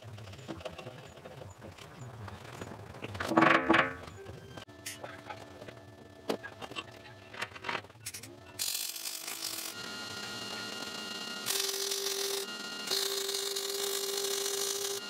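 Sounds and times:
metal clicks and knocks: 3.0s - 4.2s
welder arc crackling: 11.4s - 15.0s.

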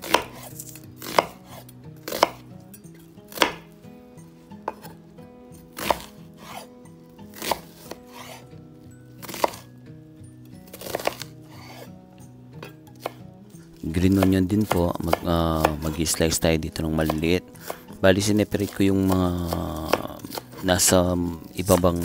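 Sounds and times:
knife chopping on cutting board: 0.0s - 2.5s, 3.3s - 3.8s, 4.6s - 5.0s, 5.8s - 6.7s, 7.3s - 8.4s, 9.2s - 9.7s, 10.7s - 11.9s, 12.6s - 13.2s, 14.0s - 16.2s, 16.9s - 22.0s.

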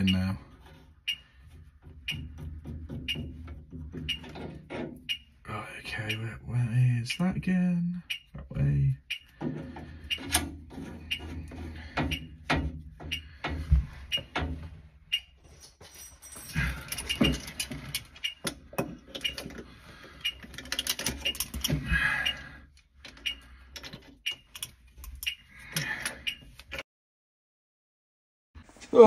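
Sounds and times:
metallic clicks and clinks: 15.1s - 19.6s, 20.2s - 21.8s.

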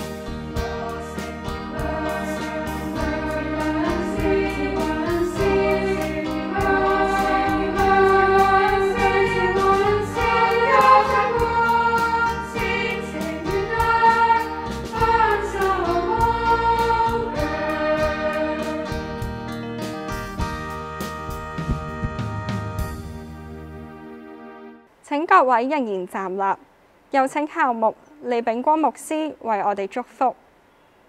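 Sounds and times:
choir singing: 0.0s - 19.2s
instrumental accompaniment with beat: 0.0s - 24.6s.

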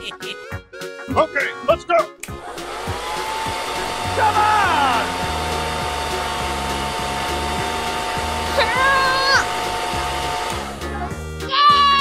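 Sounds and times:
low music beat: 0.0s - 11.4s
hair dryer blowing: 2.4s - 11.2s.

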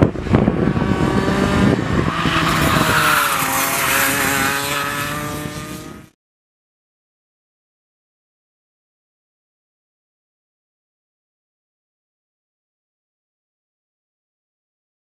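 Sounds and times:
kart engine running hard: 0.0s - 6.2s.

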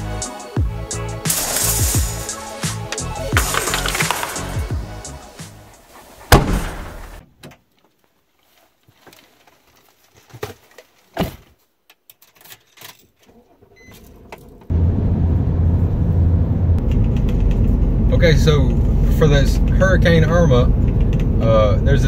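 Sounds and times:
clicks and knocks: 1.3s - 4.8s
car cabin road rumble: 4.4s - 7.3s, 14.2s - 22.0s
loud thump: 6.2s - 7.3s.

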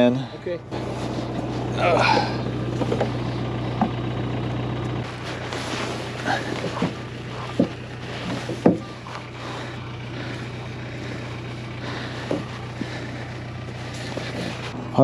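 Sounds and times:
vehicle engine idling: 0.0s - 15.0s
short knocks and clanks: 2.0s - 4.0s, 6.1s - 9.3s.

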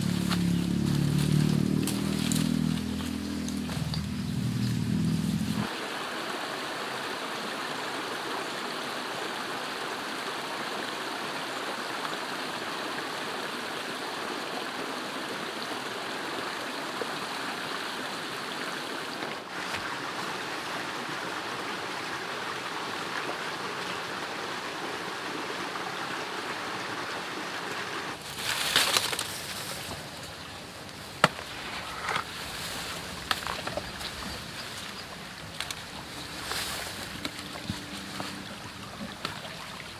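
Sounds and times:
leafy plants rustling and snapping: 0.0s - 5.7s, 28.2s - 38.4s
stream rushing over stones: 5.6s - 39.9s.

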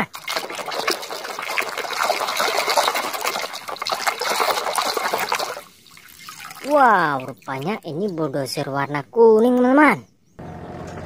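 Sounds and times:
small splashes: 0.0s - 8.6s
water sloshing in a plastic basin: 0.0s - 8.7s.

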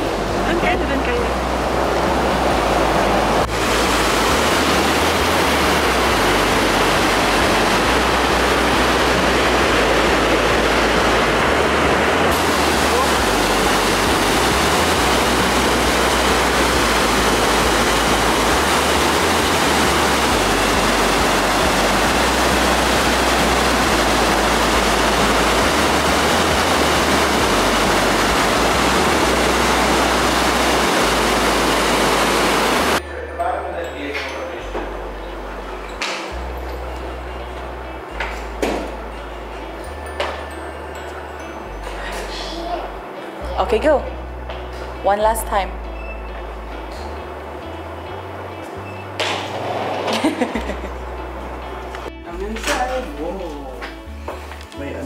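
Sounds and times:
waterfall rushing onto boulders: 0.0s - 33.0s.

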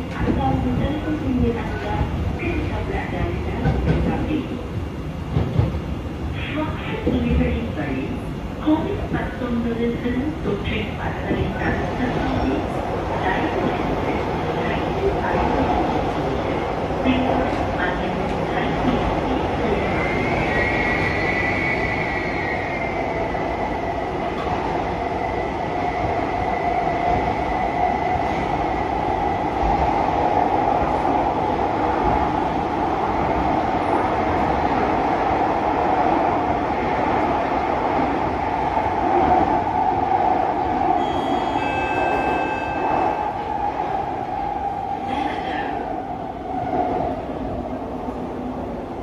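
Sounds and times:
brief high tones: 41.0s - 43.0s.

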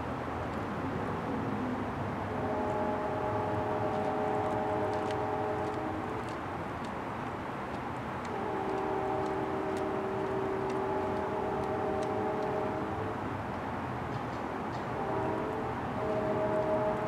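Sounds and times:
distant horn chord: 2.3s - 6.2s, 8.3s - 13.0s, 14.9s - 17.0s.

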